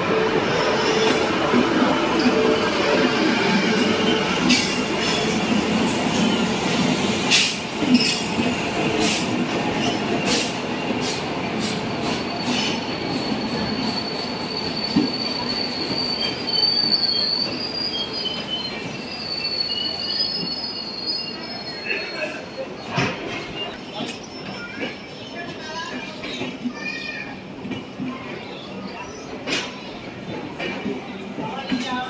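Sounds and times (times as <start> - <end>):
high wheel squeal: 9.8 - 22.8.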